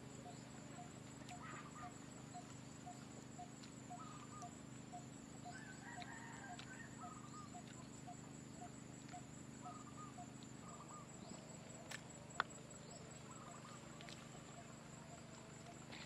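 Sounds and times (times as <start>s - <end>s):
distant rooster crowing: 5.5s - 7.3s.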